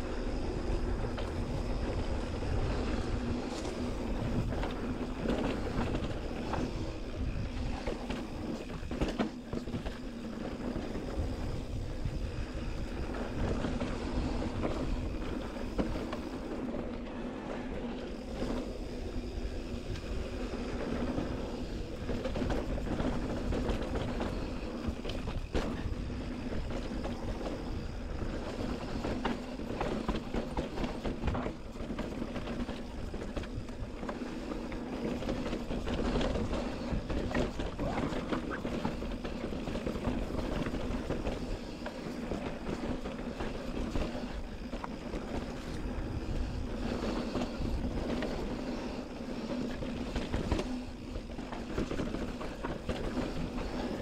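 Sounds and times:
bike tyre rumble on dirt: 0:00.0 - 0:54.0
wind on microphone: 0:00.0 - 0:54.0.

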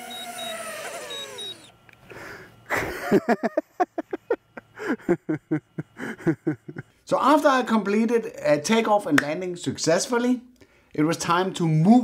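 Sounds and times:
pulsing high beep: 0:00.0 - 0:01.7
drone motors whining down: 0:00.0 - 0:02.7.

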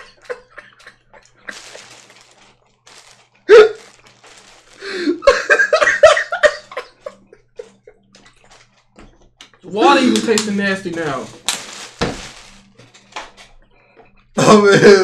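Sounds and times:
stifled laughter: 0:00.0 - 0:02.1, 0:04.8 - 0:08.1.

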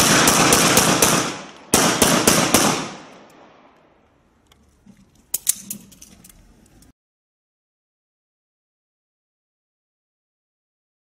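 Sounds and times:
handgun shots echoing: 0:00.0 - 0:03.8.

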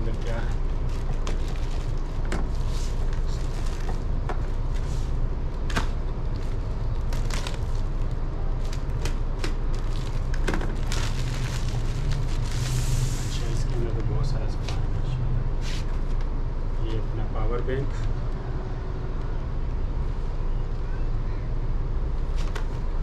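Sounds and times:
plastic bag crinkling: 0:09.7 - 0:12.7.

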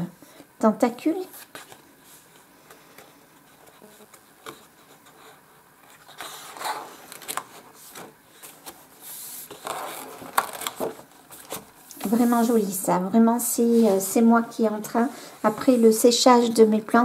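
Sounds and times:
paper page being turned: 0:01.2 - 0:12.8.

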